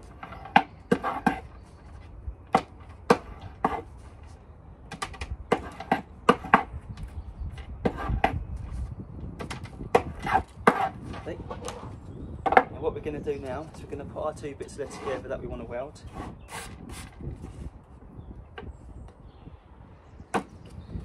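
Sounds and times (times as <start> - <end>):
metal scraping rod on wood: 14.8 - 15.3.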